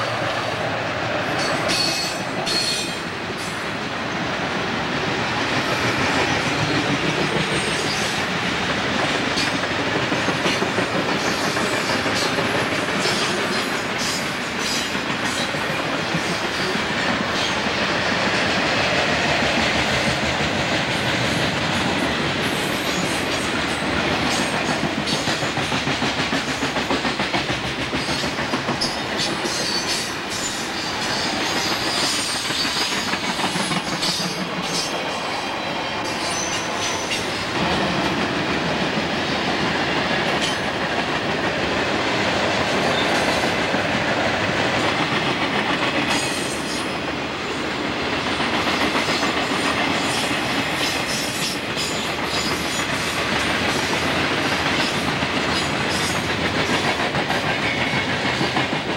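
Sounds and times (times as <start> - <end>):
freight train rumbling: 0.0 - 58.9
wheels clicking over rail joints: 5.4 - 35.2, 48.2 - 58.9.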